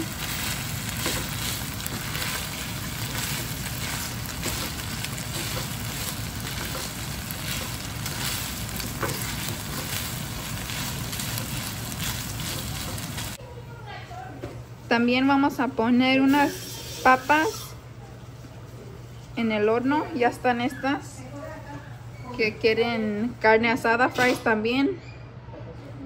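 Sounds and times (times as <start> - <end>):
meat sizzling in a skillet: 0.0 - 13.4, 16.3 - 17.7
spatula stirring: 0.0 - 13.4.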